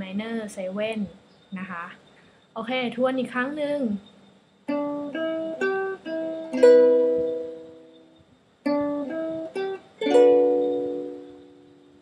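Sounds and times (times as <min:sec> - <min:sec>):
ukulele plucked notes and chord: 0:04.7 - 0:07.9, 0:08.6 - 0:12.0.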